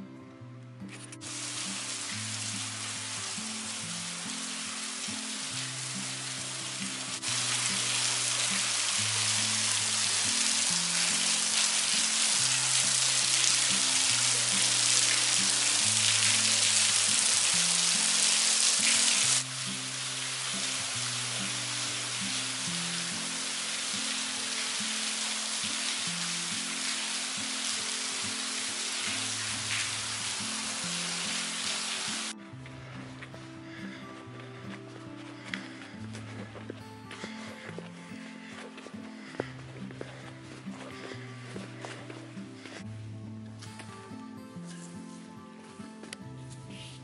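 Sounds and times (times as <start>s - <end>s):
soft background music: 0.0s - 47.0s
waterfall splashing on rock: 1.2s - 32.3s.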